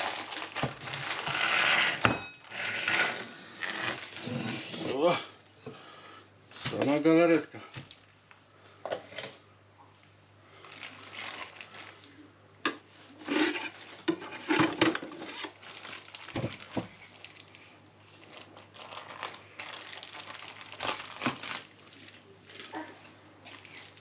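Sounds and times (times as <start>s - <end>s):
plastic crinkling and rustling: 0.0s - 5.2s, 6.5s - 12.3s, 12.9s - 24.0s.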